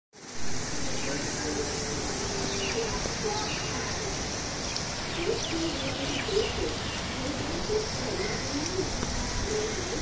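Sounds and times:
heavy rain hissing: 0.2 - 10.0
pigeon cooing: 5.1 - 10.0.

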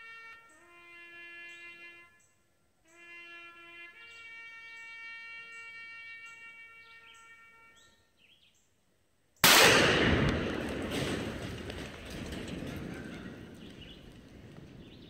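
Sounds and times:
loud blast: 9.4 - 13.4.

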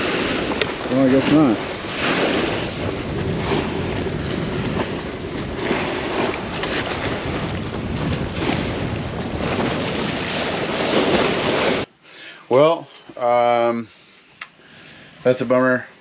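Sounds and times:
water splashing against a pier: 0.0 - 11.9
wind buffeting microphone: 0.0 - 11.9.

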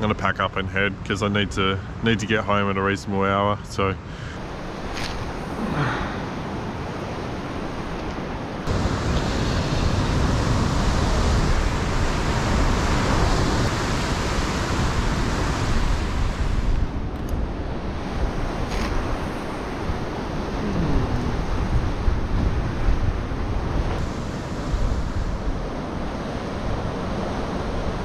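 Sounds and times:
wind on microphone: 8.6 - 28.0.

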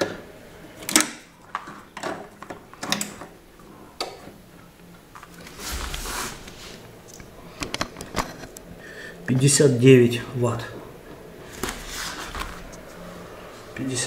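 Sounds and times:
short rustle: 5.4 - 6.8.

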